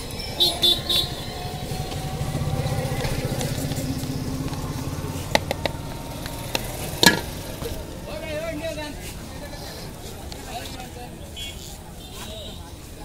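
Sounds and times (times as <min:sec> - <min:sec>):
small engine running: 0:00.0 - 0:08.9.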